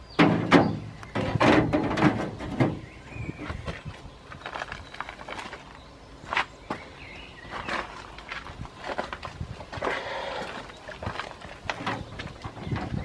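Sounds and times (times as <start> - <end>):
clunks and scraping in metal box: 0.1 - 3.7, 11.7 - 13.0
metal rattling: 0.2 - 2.9.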